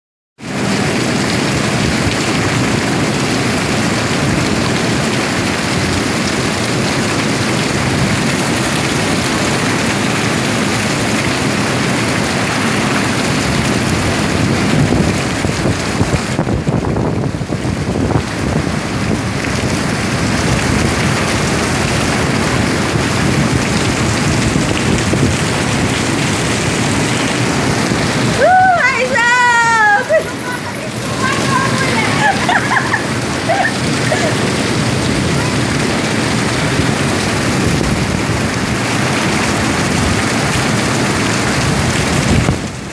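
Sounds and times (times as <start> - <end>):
heavy rain on street and awning: 0.4 - 42.9.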